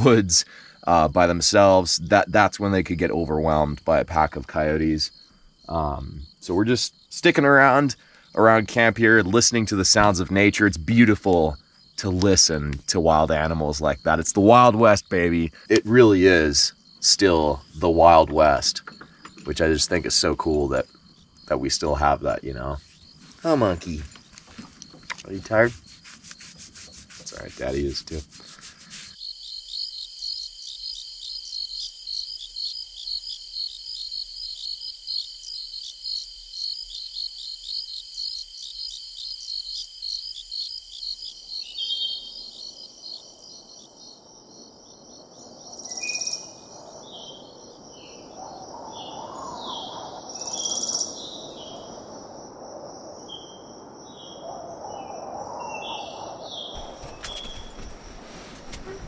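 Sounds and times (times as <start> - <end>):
crickets chirping: 0.0 - 59.0
birds chirping: 1.4 - 29.8, 41.4 - 43.9, 54.1 - 59.0.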